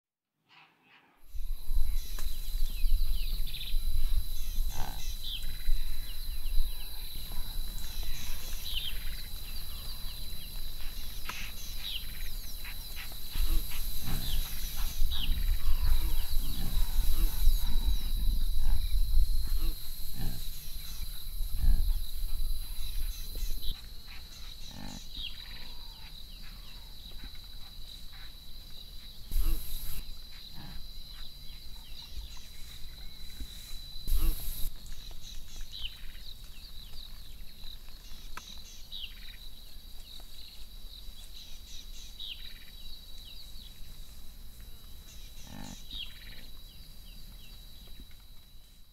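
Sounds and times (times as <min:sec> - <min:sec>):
high insect drone: 0:01.2 - 0:48.9
warthogs grunting: 0:13.3 - 0:20.8.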